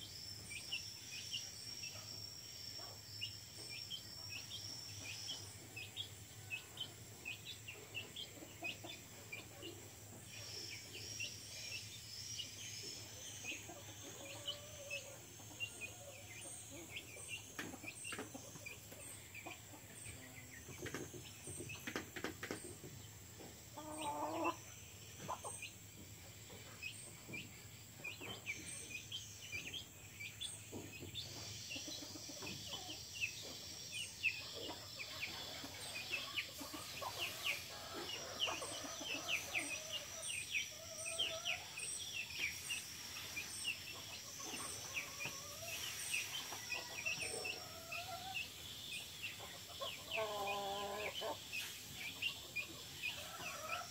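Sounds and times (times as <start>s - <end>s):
chicks peeping: 0.1s - 53.9s
hen clucking: 23.7s - 25.7s, 34.4s - 41.8s, 42.5s - 48.6s, 49.3s - 53.9s.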